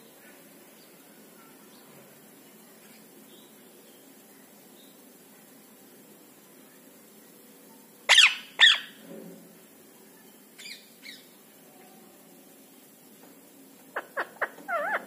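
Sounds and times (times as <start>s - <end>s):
parakeet screeching: 8.1s - 8.9s, 14.0s - 15.0s.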